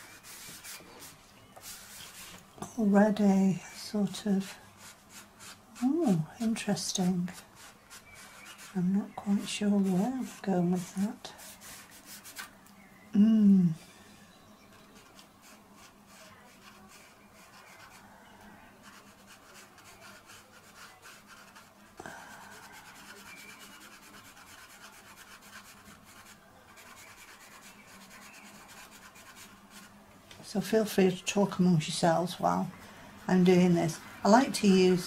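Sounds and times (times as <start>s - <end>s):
pencil scratching on paper: 3.8s - 12.5s, 15.0s - 18.0s, 18.8s - 21.8s, 22.6s - 29.9s
woman humming: 13.1s - 13.9s.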